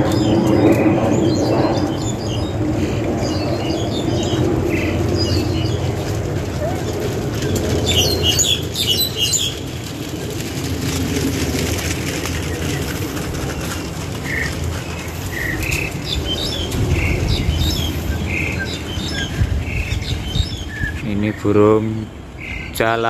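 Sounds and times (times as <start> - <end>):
low background rumble: 0.0 - 23.0.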